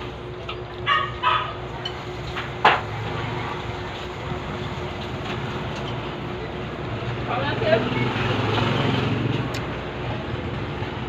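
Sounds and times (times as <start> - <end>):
dog barking: 0.8 - 1.6.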